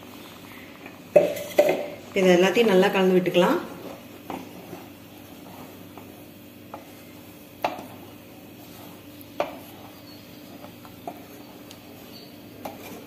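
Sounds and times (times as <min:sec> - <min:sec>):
wooden spatula stirring curry: 0:03.6 - 0:13.0.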